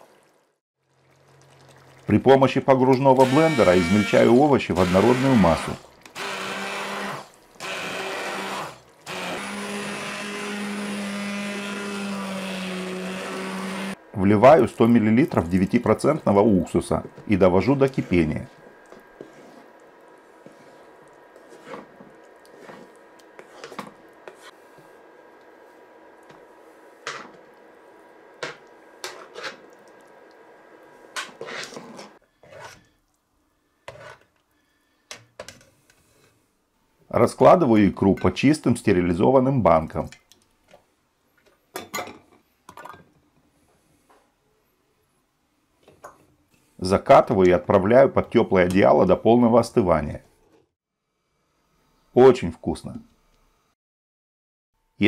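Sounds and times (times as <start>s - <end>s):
immersion blender humming: 3.1s - 14.0s
metal spoon scraping pot: 20.4s - 24.6s, 31.2s - 32.9s.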